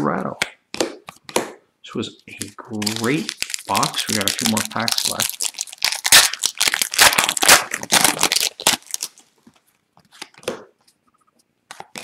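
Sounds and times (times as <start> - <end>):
foil wrapper tearing and crinkling: 2.4 - 9.2.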